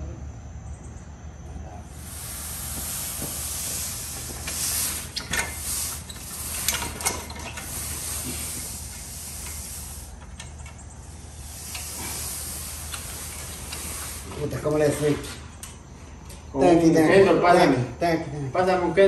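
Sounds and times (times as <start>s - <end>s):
broom scraping wet concrete: 2.0s - 10.3s, 11.1s - 15.4s.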